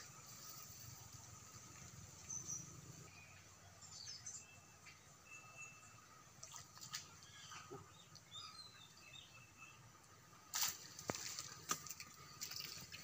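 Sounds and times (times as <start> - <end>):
faint bird chirps: 2.2 - 6.6.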